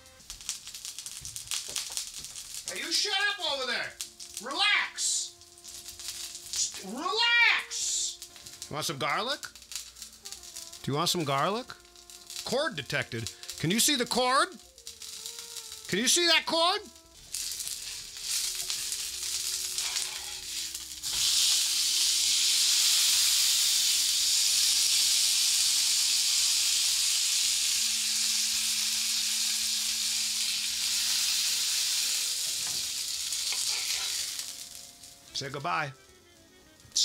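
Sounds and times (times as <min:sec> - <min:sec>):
patty sizzling in grill pan: 0:00.0 - 0:37.0.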